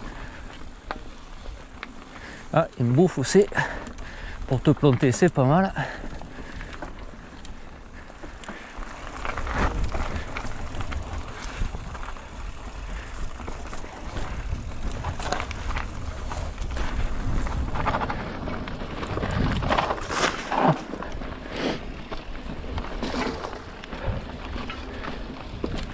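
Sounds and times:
bike rattling over bumps: 0:00.0 - 0:25.9
bike tyres rumbling on trail: 0:00.0 - 0:25.9
wind buffeting microphone: 0:09.0 - 0:20.1.

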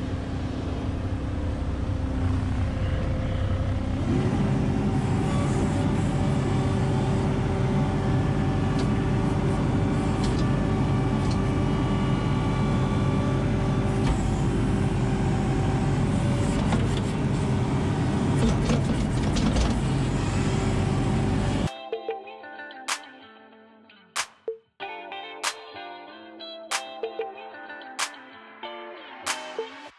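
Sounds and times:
diesel engine running under load: 0:00.0 - 0:21.7.

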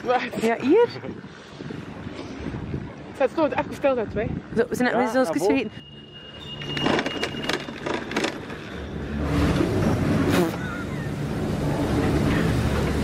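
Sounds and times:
chairlift machinery rumble: 0:05.8 - 0:13.0.

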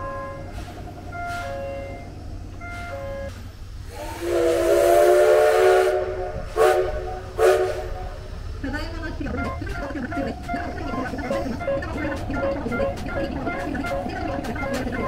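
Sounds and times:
steam hissing: 0:02.8 - 0:08.6
steam locomotive whistle: 0:03.8 - 0:08.3.

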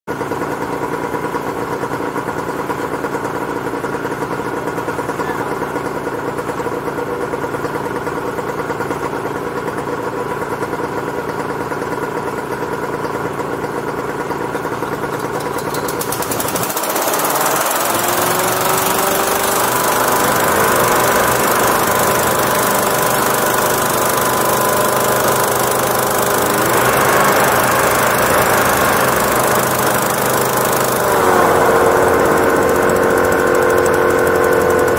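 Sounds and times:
hovercraft engine: 0:12.4 - 0:34.9
rush of fan air: 0:16.4 - 0:34.9.

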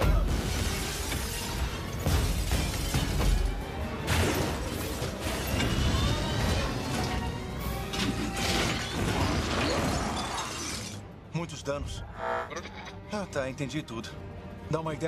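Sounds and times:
heavy crashes and shattering debris: 0:00.0 - 0:11.0
dramatic orchestral score: 0:00.0 - 0:15.0.

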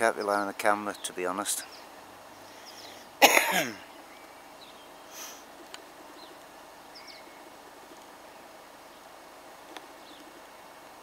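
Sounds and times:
man coughing: 0:03.2 - 0:03.8.

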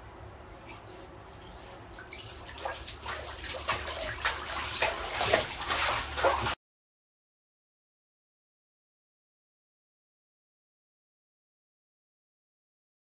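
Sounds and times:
dog splashing in bathwater: 0:00.7 - 0:06.6.

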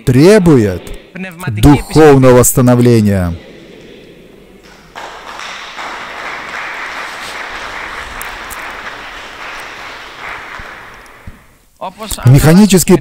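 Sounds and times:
congregation applauding: 0:04.6 - 0:11.6.

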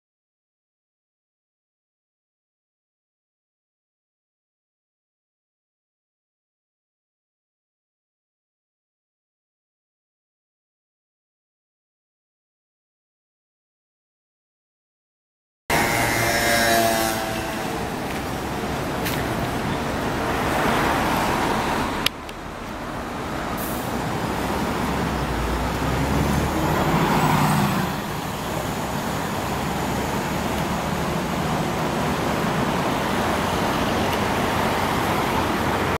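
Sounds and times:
bus diesel engine passing: 0:15.7 - 0:36.0
road traffic noise: 0:15.7 - 0:36.0.

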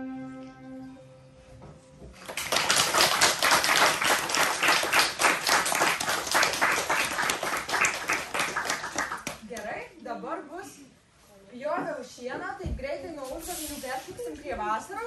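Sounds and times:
plucked string note: 0:00.0 - 0:02.1
audience applauding: 0:02.2 - 0:09.4.

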